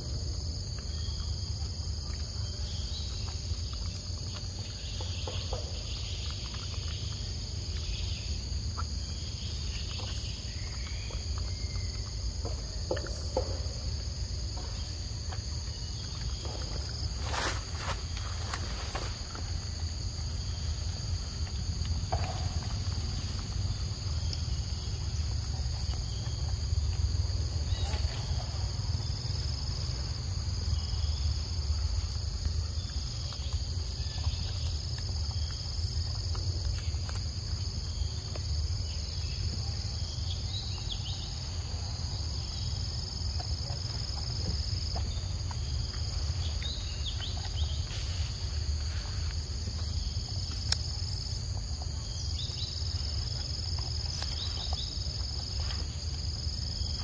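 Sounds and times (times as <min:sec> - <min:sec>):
insects buzzing: 0:00.0 - 0:57.0
faint chirps and clicks: 0:00.5 - 0:14.0, 0:20.5 - 0:28.4, 0:32.1 - 0:41.3, 0:42.4 - 0:56.2.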